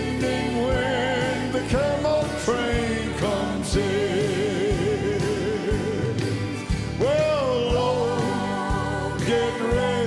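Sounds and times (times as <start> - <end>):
live gospel band music: 0.0 - 10.0
person singing: 7.0 - 10.0.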